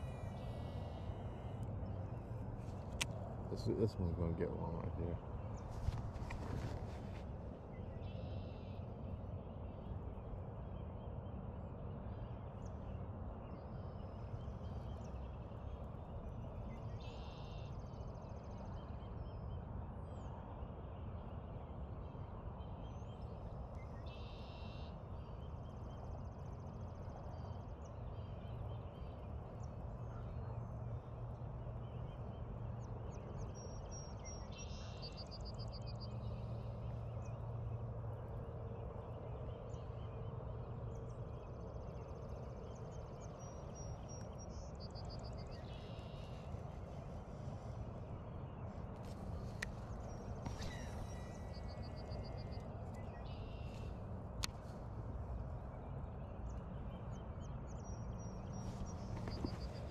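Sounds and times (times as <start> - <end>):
low outdoor rumble: 0.0 - 59.9
short high bird calls: 50.4 - 52.2.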